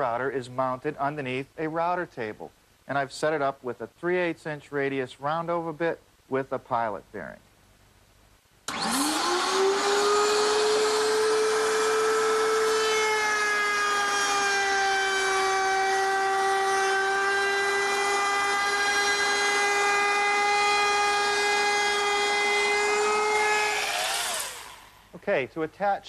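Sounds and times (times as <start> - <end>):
router high whine: 8.7 - 25.1.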